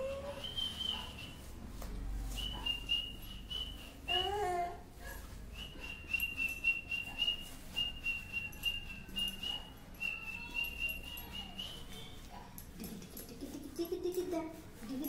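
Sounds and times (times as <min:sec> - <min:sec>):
high whistle-like tone: 0:00.3 - 0:01.4, 0:05.5 - 0:12.2.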